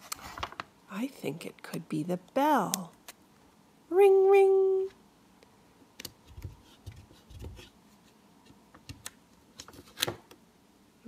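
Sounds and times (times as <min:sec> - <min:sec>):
paper rustling: 0:00.0 - 0:00.7.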